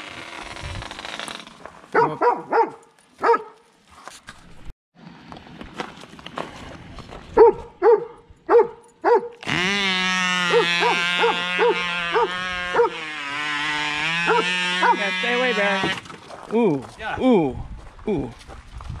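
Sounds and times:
dog barking: 2.0 - 3.6, 7.4 - 9.4, 10.5 - 13.0, 14.3 - 15.0.

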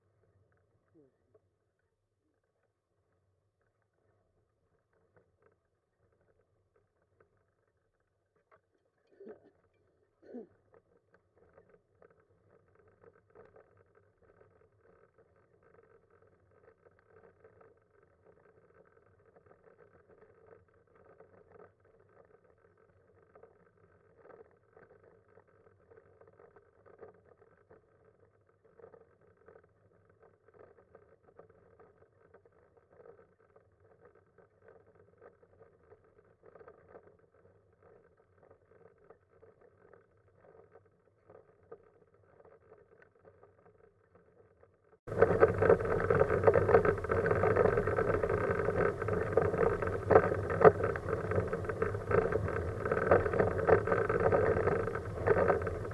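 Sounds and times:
wheelchair rolling on asphalt: 45.1 - 55.9.

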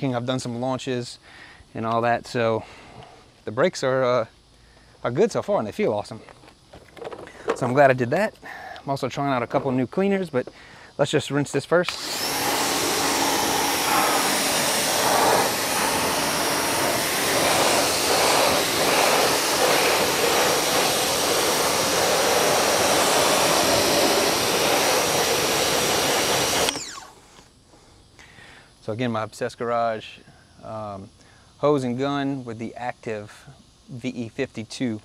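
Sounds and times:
pressure washer spray hissing: 11.8 - 27.3.

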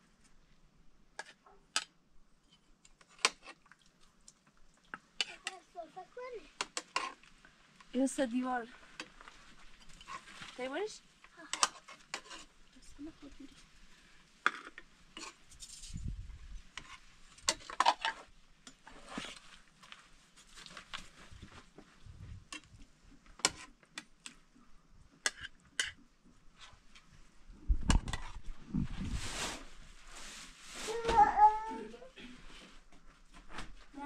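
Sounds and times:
metal spoon clinking and scraping: 9.8 - 10.2, 11.5 - 12.5, 14.5 - 16.0.

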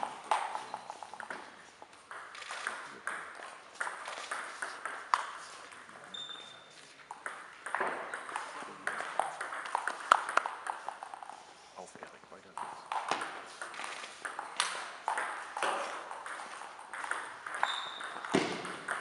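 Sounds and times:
table tennis ball hits: 0.0 - 6.0, 7.1 - 11.3, 12.6 - 19.0
brief high squeak: 6.1 - 6.8, 17.6 - 18.2.

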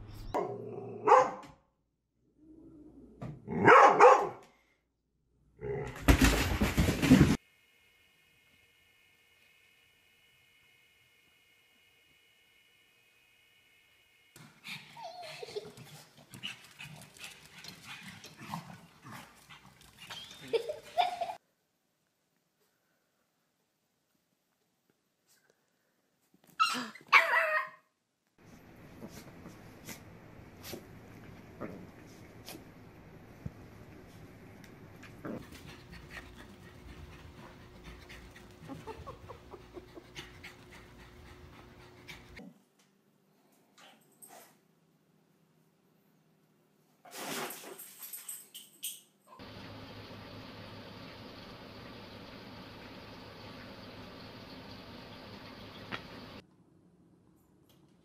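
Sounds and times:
dog panting: 14.4 - 20.2, 35.2 - 42.4
paws clicking on tile floor: 15.4 - 20.4
dog yelping and whining: 26.5 - 27.8.

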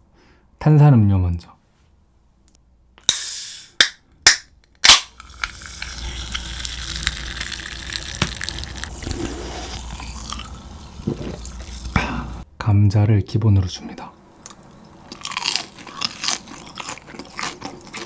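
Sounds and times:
can popping open: 3.0 - 8.8
drink fizzing: 5.1 - 12.4.

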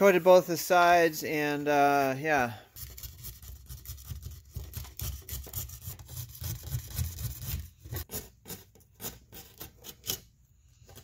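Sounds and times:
knife rasping along paddle edge: 2.8 - 10.3.

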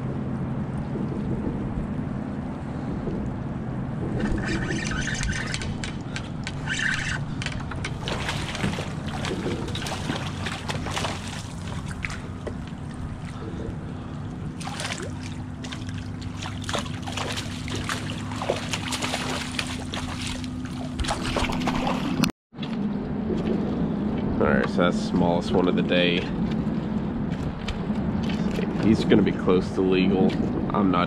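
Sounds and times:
steady low hum: 0.0 - 31.0
water splashing: 4.0 - 22.3.

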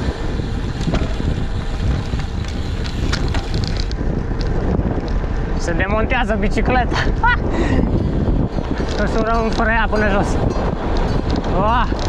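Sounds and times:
wind buffeting microphone: 0.0 - 12.0
faint clicks and rattles: 0.6 - 5.7, 8.0 - 12.0.

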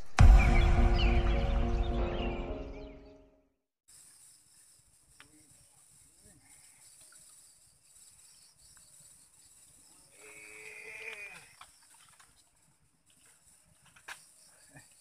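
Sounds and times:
night insects chirring: 3.9 - 15.0.

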